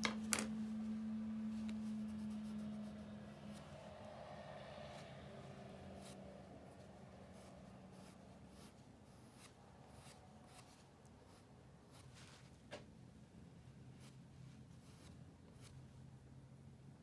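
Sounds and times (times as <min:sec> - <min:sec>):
low room hum: 0:00.0 - 0:17.0
charcoal scratching on paper: 0:01.4 - 0:12.6, 0:13.7 - 0:16.0.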